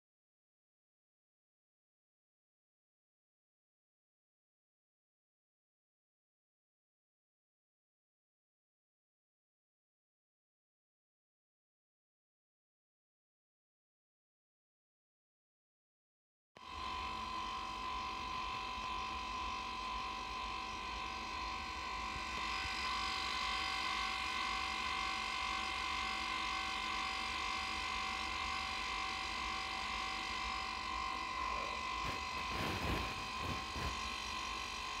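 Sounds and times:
electric machinery humming: 16.6s - 35.0s.

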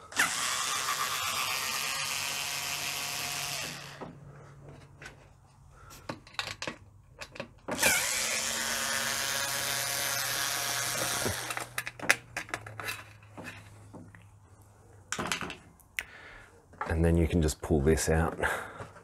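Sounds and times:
cordless electric screwdriver spinning: 0.1s - 4.0s, 7.8s - 11.9s.

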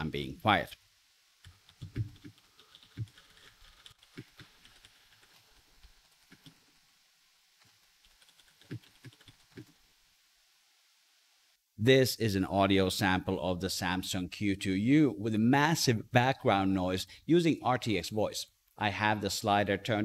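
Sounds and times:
faint hiss: 0.0s - 20.0s
mechanical keyboard typing: 1.5s - 5.4s, 8.0s - 9.7s.

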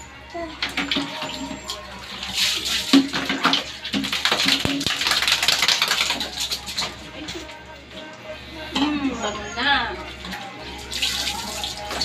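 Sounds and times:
background music: 0.0s - 12.0s
water splashing and sloshing: 0.6s - 8.2s, 10.1s - 12.0s.

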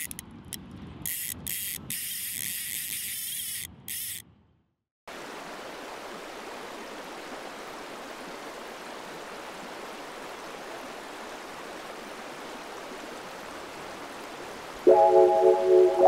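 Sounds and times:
stream flowing: 5.1s - 16.0s.

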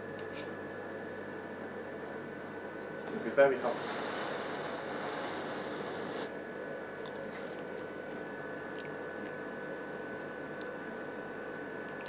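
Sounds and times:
chewing mouth sounds: 6.5s - 7.9s, 8.7s - 11.2s.

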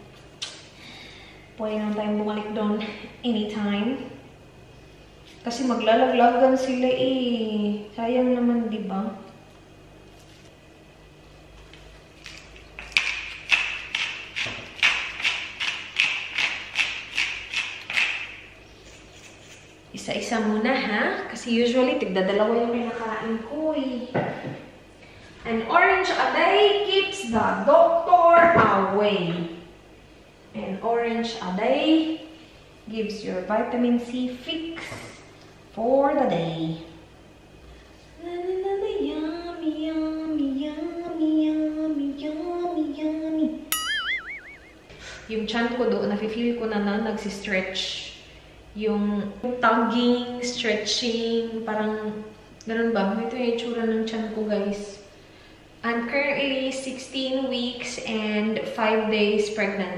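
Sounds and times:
woman singing wordless tune: 38.2s - 43.6s.

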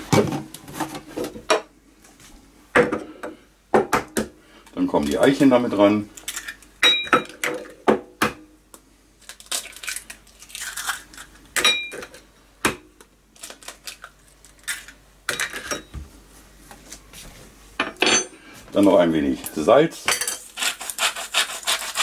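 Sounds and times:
eggshells cracking: 9.2s - 11.6s.

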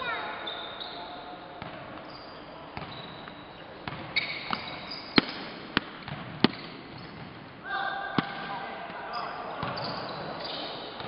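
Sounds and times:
sneaker squeaks: 0.0s - 5.4s, 6.4s - 7.2s, 9.1s - 11.0s
basketball bouncing on court: 3.8s - 7.4s, 9.6s - 10.0s.

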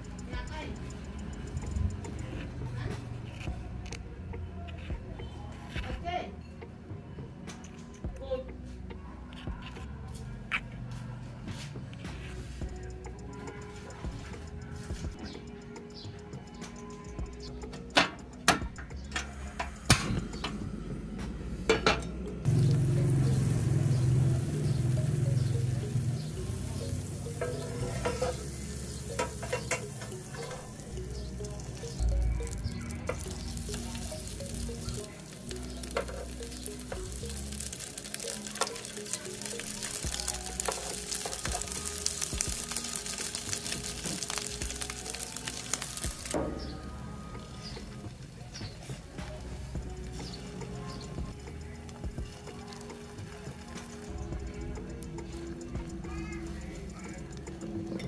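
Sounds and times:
background music: 0.0s - 58.0s
butter sizzling in a pan: 22.5s - 46.4s, 50.6s - 54.0s
frying pan set on grate: 22.6s - 31.8s, 32.4s - 46.6s.

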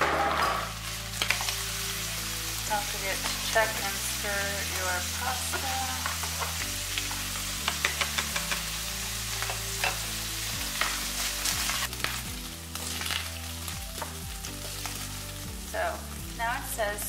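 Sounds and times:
meat sizzling in a frying pan: 0.0s - 17.0s
utensil clicking and scraping pan: 7.6s - 8.7s.

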